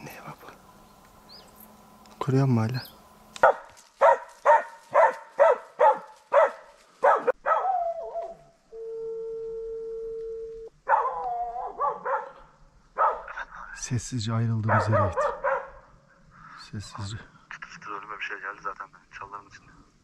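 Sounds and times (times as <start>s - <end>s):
dog barking: 3.4s - 8.4s, 10.8s - 13.4s, 14.6s - 16.0s
dog baying: 3.4s - 8.5s, 10.9s - 13.4s, 14.6s - 15.9s
flat steady tone: 8.7s - 10.7s.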